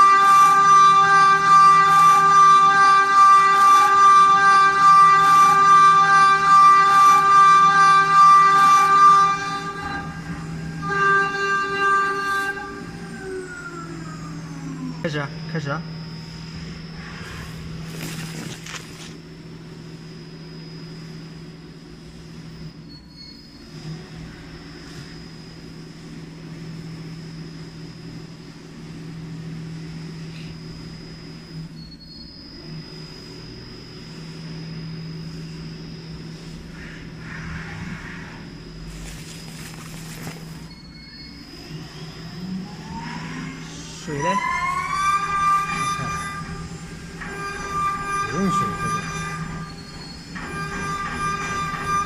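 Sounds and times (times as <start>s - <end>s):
metal cutting noise: 0.0s - 19.2s, 36.8s - 52.0s
milling machine spindle whine: 0.0s - 52.0s.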